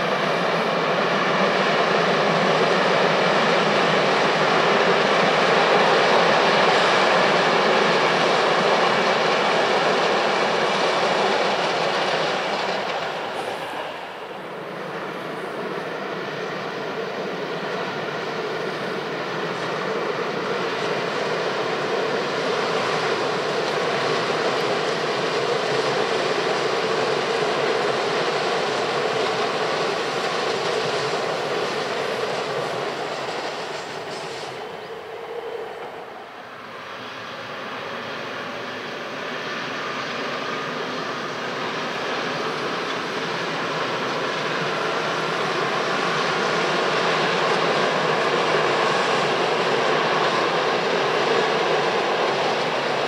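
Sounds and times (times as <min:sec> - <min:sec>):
electric train running past: 0:00.0 - 0:53.0
locomotive hauling passenger coaches: 0:00.0 - 0:53.0.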